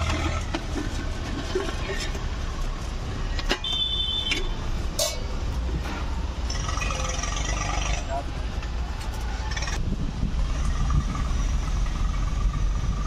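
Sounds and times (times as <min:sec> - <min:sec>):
road traffic rumble: 0:00.0 - 0:13.0
vehicle horn beep: 0:03.5 - 0:04.6.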